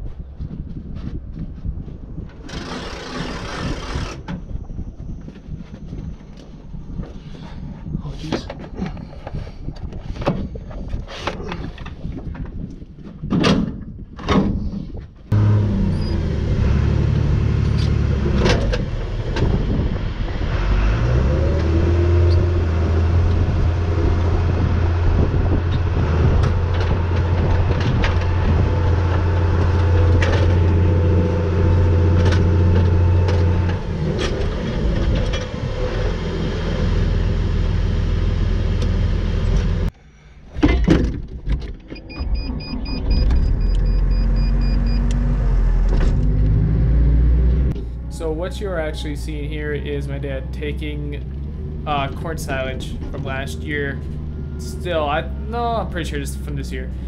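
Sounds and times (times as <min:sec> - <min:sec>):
diesel engine running: 0:15.3 - 0:39.9, 0:42.3 - 0:57.0.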